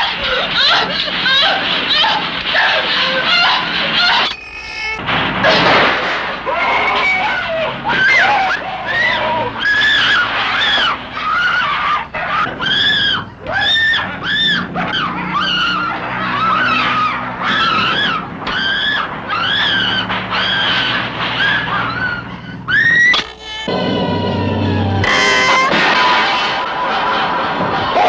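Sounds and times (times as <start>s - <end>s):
woman screaming: 6.5s - 23.1s.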